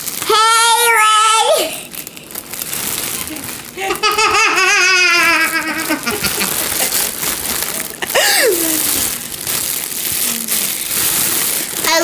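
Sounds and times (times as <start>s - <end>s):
girl laughing with helium voice: 3.8s - 7.2s, 7.8s - 9.0s.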